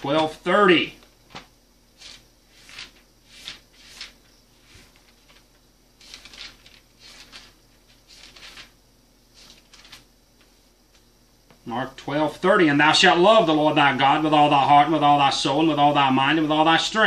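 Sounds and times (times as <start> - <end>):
pages turning: 1.3 - 11.0.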